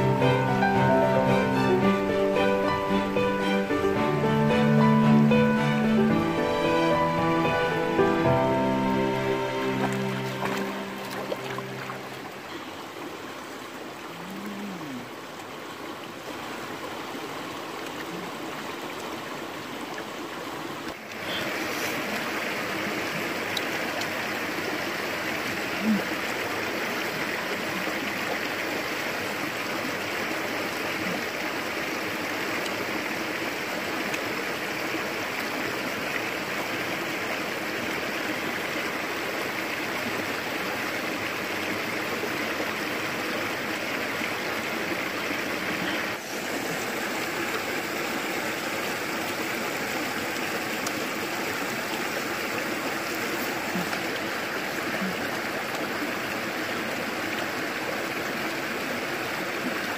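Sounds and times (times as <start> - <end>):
stream water running: 0.0 - 59.9.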